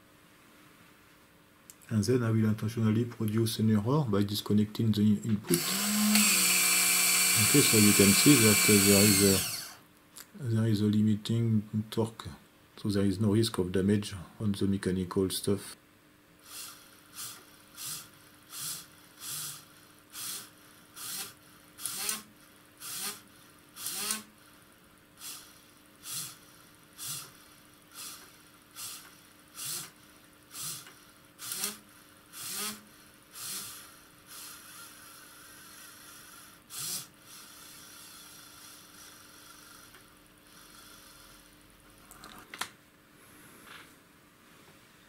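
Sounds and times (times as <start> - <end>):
small electric motor running in bursts: 5.5 - 9.8, 16.5 - 24.3, 25.2 - 41.5.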